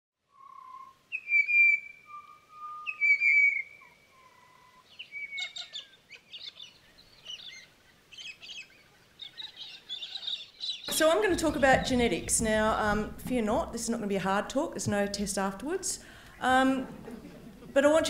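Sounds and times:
birds whistling: 0.3s - 10.9s
birds chirping and chattering: 0.4s - 13.7s.

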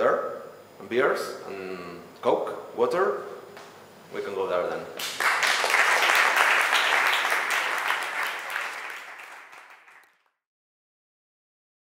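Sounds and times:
audience applauding: 5.0s - 10.3s.

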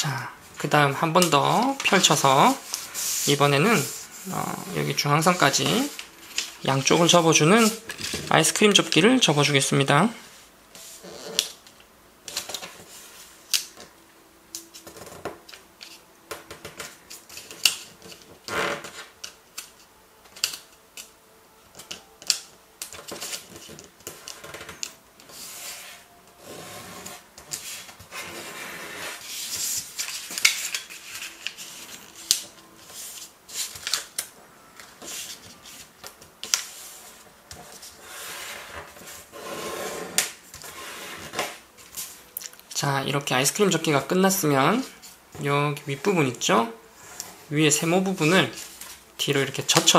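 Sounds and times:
paper sliding on table: 2.0s - 4.2s, 25.3s - 30.0s, 36.7s - 41.6s.

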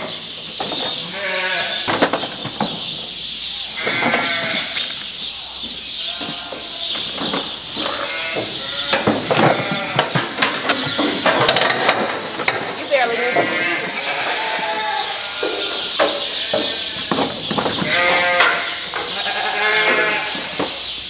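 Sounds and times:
sheep bleating: 1.1s - 1.9s, 7.8s - 10.1s, 13.0s - 15.7s, 17.8s - 20.6s
sharp knocks and clanks: 1.8s - 3.1s, 5.6s - 13.7s, 15.3s - 21.0s.

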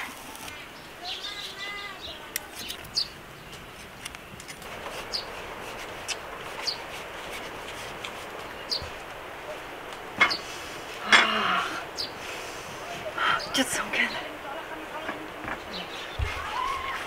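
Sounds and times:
small bird chirping: 4.9s - 5.4s, 6.1s - 6.9s, 8.4s - 9.0s, 11.9s - 12.2s.

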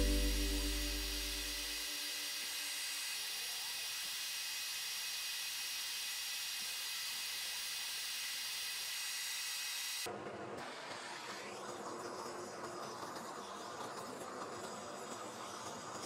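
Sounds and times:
guitar music: 0.0s - 1.8s
steady hiss: 0.0s - 9.1s.

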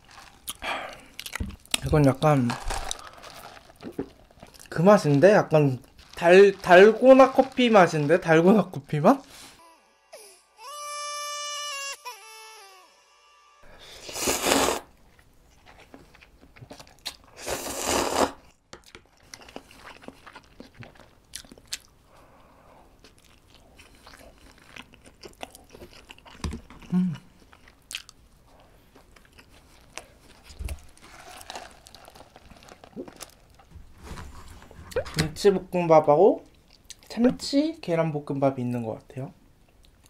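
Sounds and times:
wet chewing: 0.0s - 5.2s, 18.8s - 22.0s
sip through a straw: 13.8s - 14.9s, 17.4s - 18.4s
slurping noodles: 13.8s - 14.9s, 17.3s - 18.4s.

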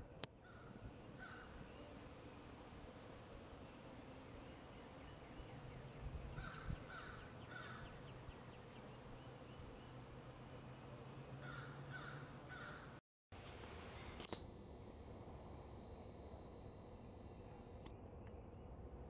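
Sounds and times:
crow cawing: 6.4s - 7.9s, 11.4s - 13.0s
faint low hum: 13.4s - 19.0s.

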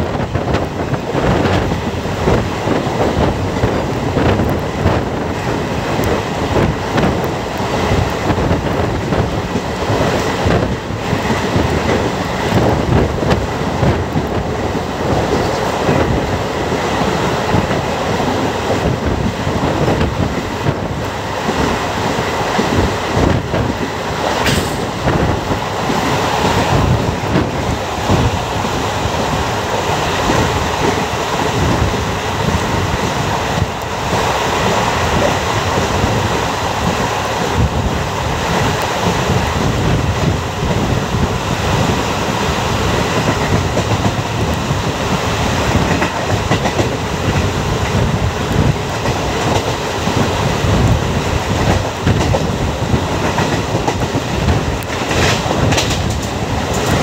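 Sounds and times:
train running noise: 0.0s - 57.0s
train wheels clattering over rails: 0.0s - 57.0s
sharp train clank: 24.3s - 25.4s.

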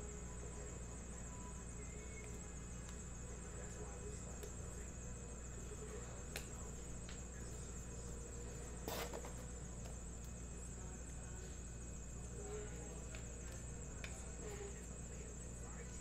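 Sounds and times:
steady low hum: 0.0s - 16.0s
cards shuffling rustle: 8.8s - 9.9s.

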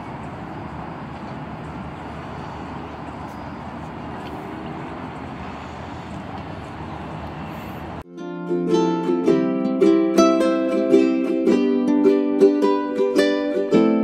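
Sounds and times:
distant freeway traffic: 0.0s - 8.1s.

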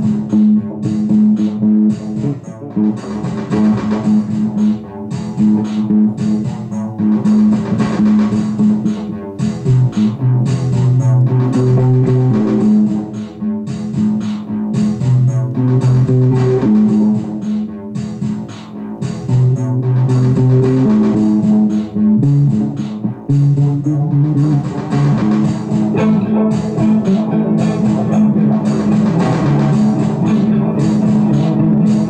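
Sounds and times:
bass guitar line: 0.0s - 32.0s
guitar: 23.9s - 32.0s.

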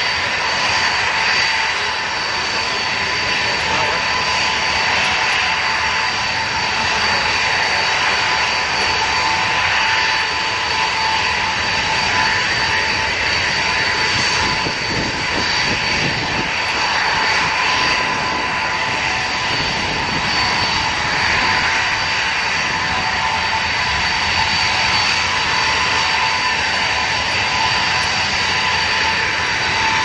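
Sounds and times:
jet engines whining at low power: 0.0s - 30.0s.

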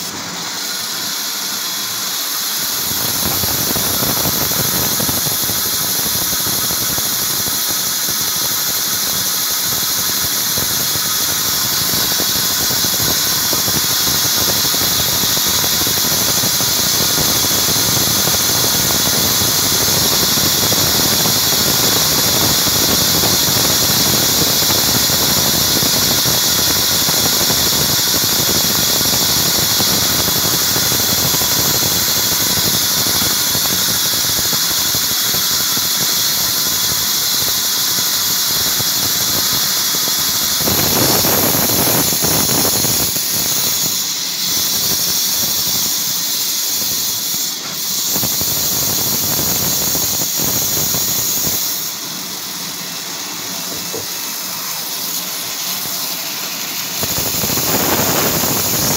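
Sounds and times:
band saw cutting wood: 53.6s - 58.9s.

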